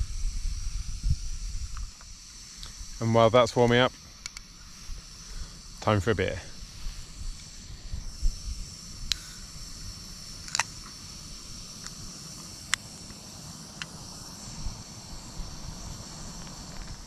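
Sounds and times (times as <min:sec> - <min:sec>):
wind rumble on microphone: 0:00.0 - 0:02.0
high hiss: 0:00.0 - 0:17.0.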